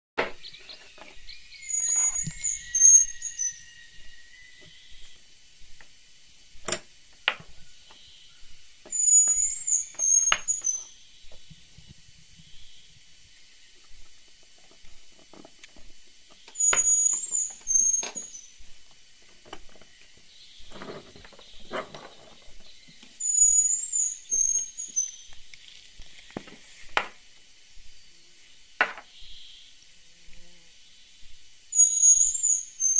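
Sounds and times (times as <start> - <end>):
bird chirping: 0.2 - 6.7, 7.3 - 15.1, 15.7 - 26.8, 27.8 - 29.8, 30.8 - 32.9.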